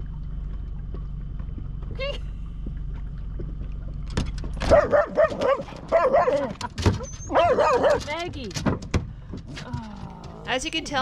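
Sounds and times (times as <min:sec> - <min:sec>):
outboard motor humming: 0:00.0 - 0:06.8
dog yelping barks: 0:04.7 - 0:06.5, 0:07.2 - 0:08.1.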